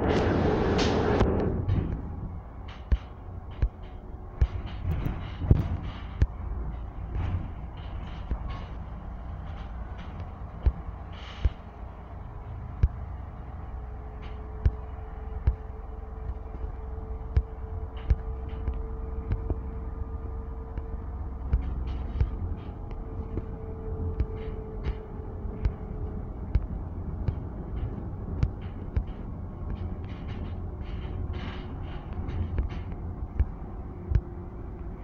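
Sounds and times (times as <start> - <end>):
bus engine and road rumble: 0.0 - 35.0
faint steady whine: 0.0 - 35.0
bus body knocks and rattles: 0.1 - 35.0.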